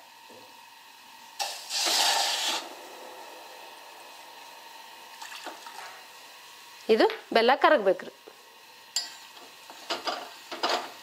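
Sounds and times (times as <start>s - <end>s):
water pouring into a pot: 1.4s - 2.7s, 5.1s - 6.0s.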